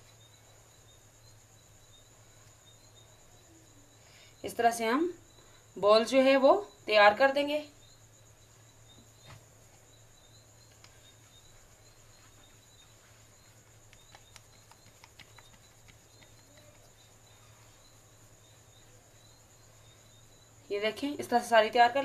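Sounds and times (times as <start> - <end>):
faint high whine: 0.0 - 22.0
faint low hum: 0.0 - 22.0
faint high chirp: 10.2 - 20.5.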